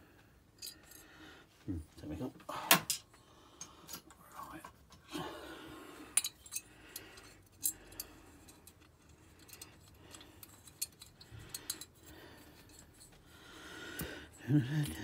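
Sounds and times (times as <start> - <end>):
metallic clicks and clinks: 0.6 - 1.1, 6.2 - 13.2.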